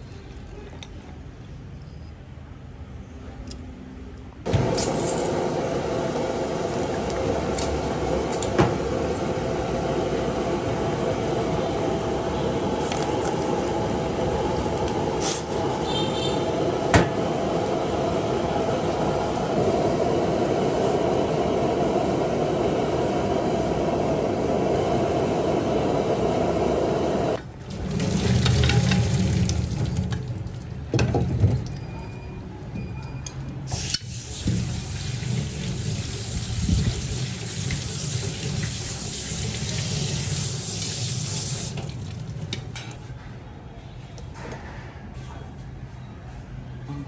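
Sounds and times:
water boiling in a pan: 4.5s - 31.5s, 33.7s - 42.8s.

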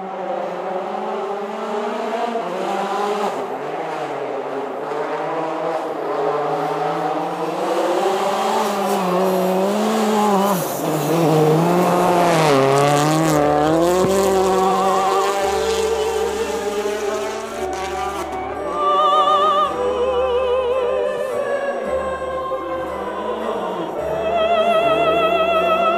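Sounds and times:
wavering melodic tone: 11.2s - 25.9s.

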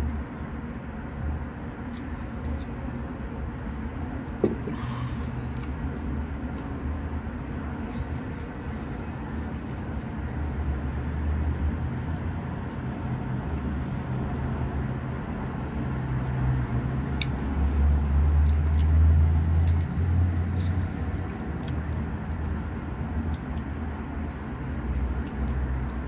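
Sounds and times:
person eating with fingers: 1.8s - 12.0s, 17.1s - 26.0s.

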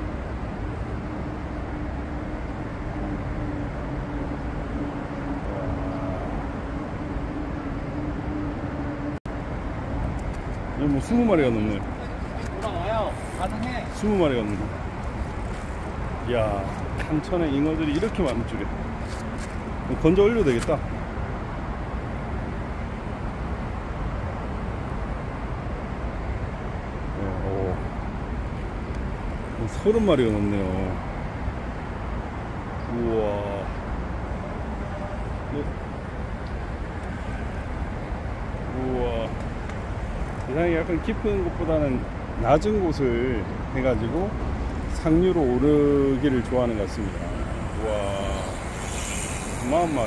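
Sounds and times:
constant low hum: 0.0s - 50.0s
outdoor background rumble: 0.0s - 50.0s.

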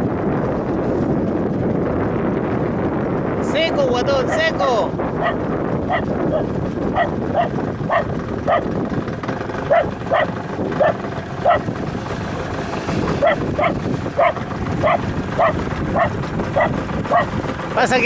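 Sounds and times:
water noise: 0.0s - 18.0s
wind: 0.0s - 18.0s
small dog yipping: 5.2s - 8.7s, 9.7s - 11.6s, 13.2s - 17.3s.

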